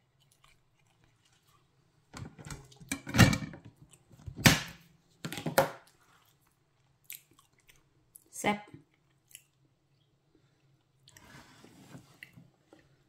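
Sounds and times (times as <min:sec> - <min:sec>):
person chewing close up: 0:00.0 - 0:02.0, 0:03.7 - 0:04.2, 0:05.9 - 0:08.3, 0:08.9 - 0:11.2.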